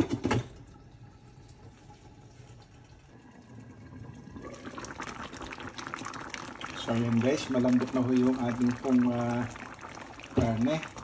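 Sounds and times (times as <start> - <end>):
stew bubbling: 0.7 - 11.0.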